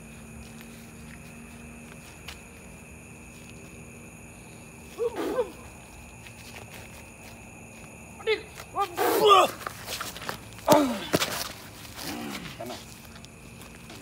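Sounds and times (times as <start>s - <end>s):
insect trill: 0.0s - 14.0s
person's wordless cry: 5.0s - 5.7s.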